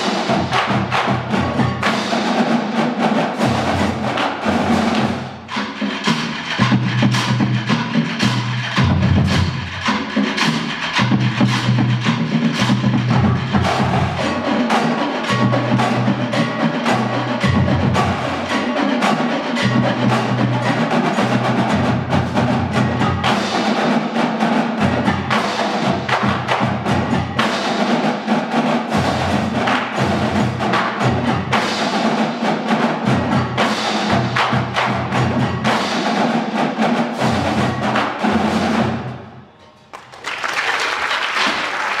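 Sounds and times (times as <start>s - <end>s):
drumline playing: 0.0s - 42.0s
audience applause: 39.9s - 42.0s.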